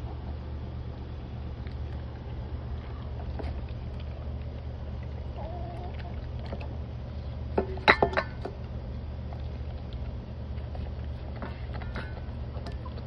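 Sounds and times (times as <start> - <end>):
steady low hum: 0.0 - 13.0
dog chewing and licking: 1.4 - 13.0
metal bowl clinking: 7.6 - 8.5.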